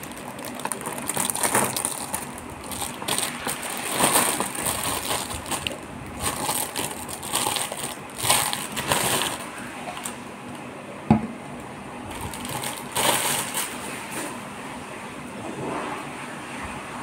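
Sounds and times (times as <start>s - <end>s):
plastic bag crinkling: 0.0s - 10.2s, 12.1s - 14.3s.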